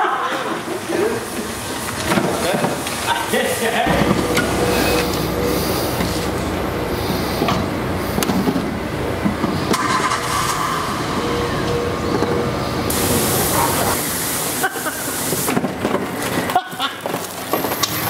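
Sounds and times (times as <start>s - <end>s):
road traffic: 0.0s - 18.0s.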